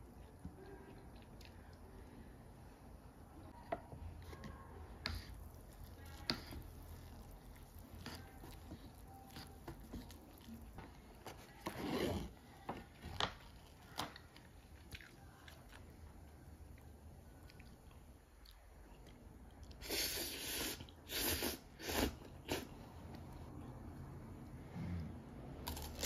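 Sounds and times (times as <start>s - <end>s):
person chewing food: 5.1s - 16.0s, 25.6s - 26.0s.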